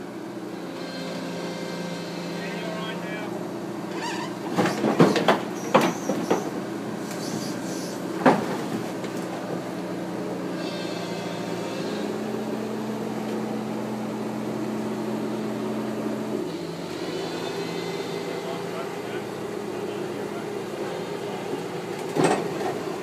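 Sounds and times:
excavator diesel engine running: 0.0 - 23.0.

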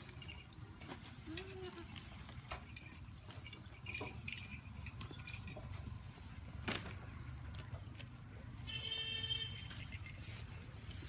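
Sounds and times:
goats crunching and chewing: 0.0 - 11.0
grass rustling: 0.0 - 11.0.

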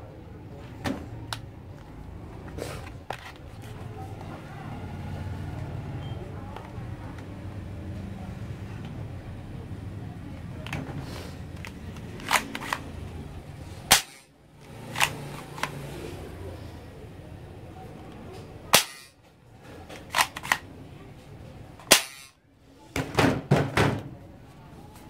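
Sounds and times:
toy guns snapping and clacking: 11.6 - 13.0, 13.9 - 15.8, 18.7 - 19.2, 19.8 - 20.7, 21.8 - 22.4.

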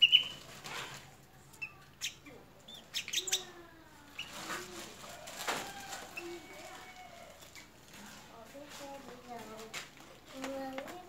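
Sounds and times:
faint bird chirps: 0.0 - 0.4, 1.6 - 4.4.

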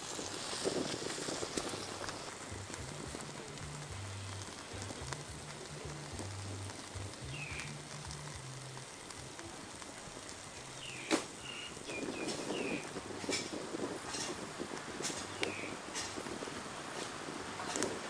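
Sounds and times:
fire popping: 0.0 - 18.0
wood fire crackling: 0.0 - 18.0
bird chirping: 5.0 - 8.0, 10.6 - 13.0, 15.2 - 15.8.

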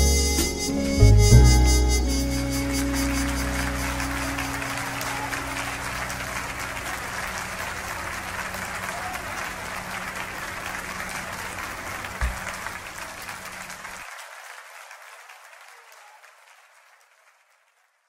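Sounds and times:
many hands clapping: 2.8 - 18.0
low thump: 12.2 - 12.5.

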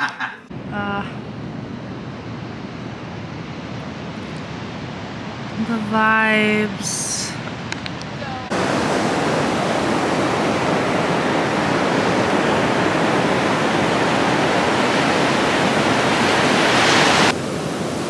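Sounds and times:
waves breaking on a beach: 1.3 - 18.0.

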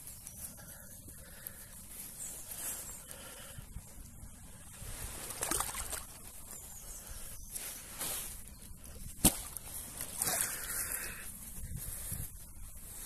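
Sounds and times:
water sloshing: 5.3 - 6.2.

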